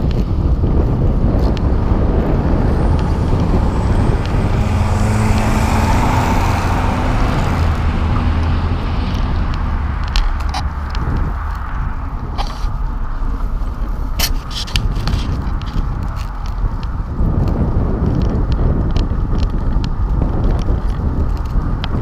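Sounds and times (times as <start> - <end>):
motor vehicle passing: 0.0 - 18.5
bicycle rumble on asphalt: 0.0 - 22.0
wind buffeting microphone: 0.0 - 22.0.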